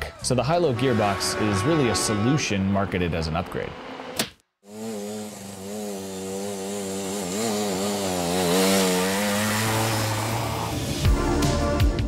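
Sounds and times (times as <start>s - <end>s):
two-stroke motorcycle engine buzzing: 4.7s - 11.2s.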